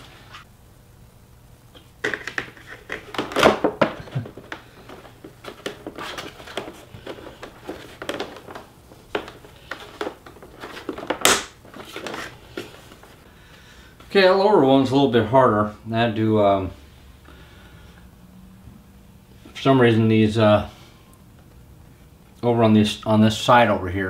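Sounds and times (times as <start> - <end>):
loud sharp snap: 11.2 - 11.6.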